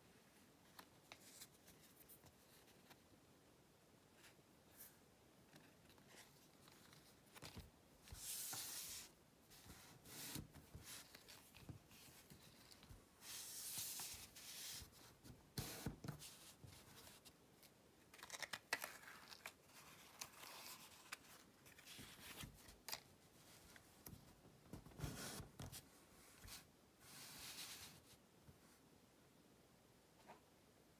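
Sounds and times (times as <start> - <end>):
paper card rustling: 5.6 - 23.1.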